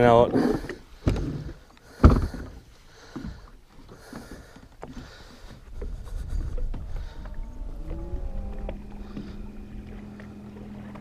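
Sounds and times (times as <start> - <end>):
water lapping around boat: 0.0 - 11.0
loud thump on boat: 1.0 - 2.6.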